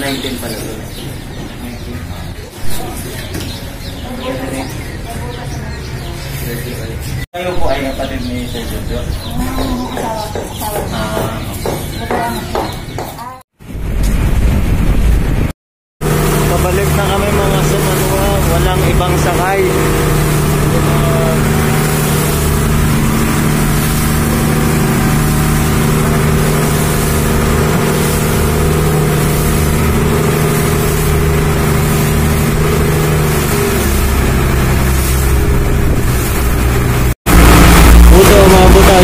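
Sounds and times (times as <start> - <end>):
wind: 0.0 - 15.5
boat engine droning: 16.0 - 39.0
water rushing: 16.0 - 39.0.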